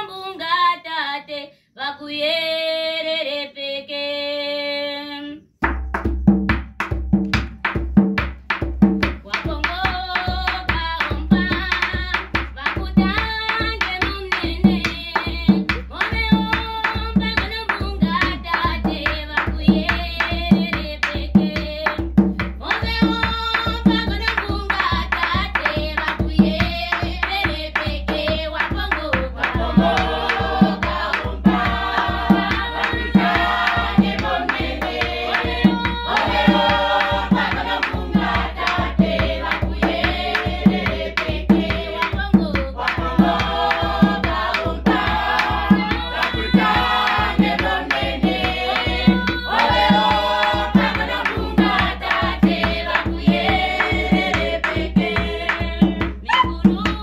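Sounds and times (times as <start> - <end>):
barrel drum beat: 5.6 - 57.0
choir singing: 29.3 - 42.0, 42.8 - 55.9.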